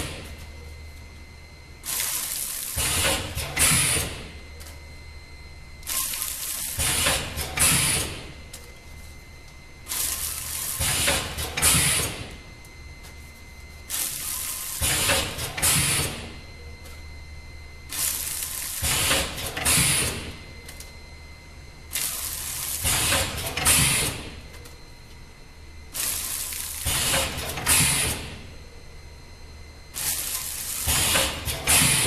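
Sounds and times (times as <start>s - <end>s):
low machine hum: 0.0s - 32.0s
packing machine clacking and hissing: 1.8s - 4.8s, 5.8s - 8.7s, 9.9s - 12.4s, 13.9s - 17.0s, 17.9s - 20.8s, 21.9s - 24.8s, 26.0s - 28.5s, 30.0s - 32.0s.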